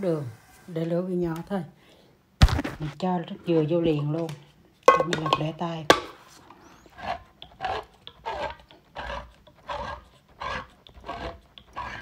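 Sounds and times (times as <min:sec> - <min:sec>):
can opener grinding crunch: 0:05.1 - 0:12.0.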